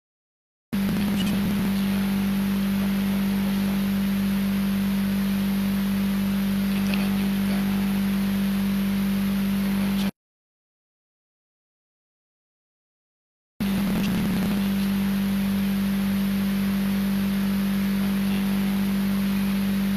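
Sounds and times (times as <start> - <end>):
electronic hum with hiss: 0.8 - 10.1, 13.6 - 19.9.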